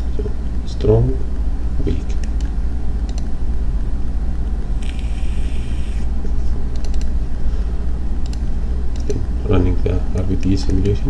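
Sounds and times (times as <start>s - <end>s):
low background rumble: 0.0s - 11.0s
computer mouse clicks: 3.1s - 3.3s, 6.7s - 7.2s, 8.2s - 9.2s, 10.2s - 11.0s.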